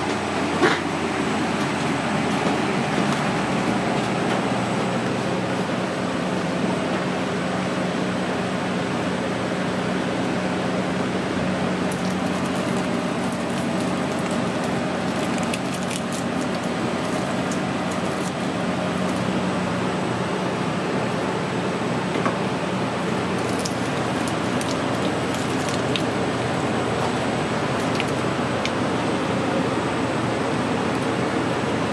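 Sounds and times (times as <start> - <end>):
machine hum: 0.0 - 31.9
meat tearing and squishing: 11.9 - 19.3, 23.1 - 28.8.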